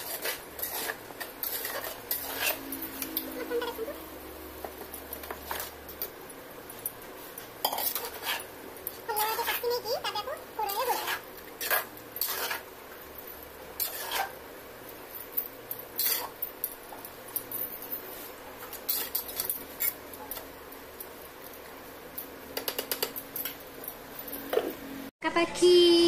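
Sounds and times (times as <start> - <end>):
spatula scraping clay pot: 0.0 - 4.0, 7.6 - 8.5, 9.1 - 10.0, 10.6 - 12.7, 13.8 - 14.4.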